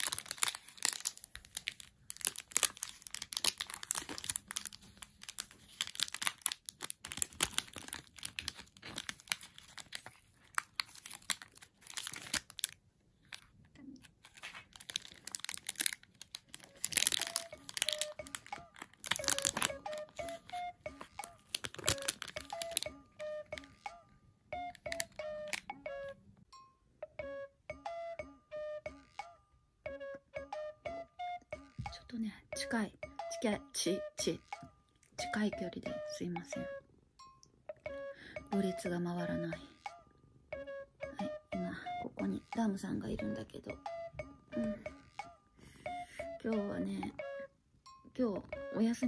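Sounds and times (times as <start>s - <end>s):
paper wrapping crinkling and tearing: 0.0s - 23.7s, 24.7s - 25.6s
light background music: 14.9s - 49.0s.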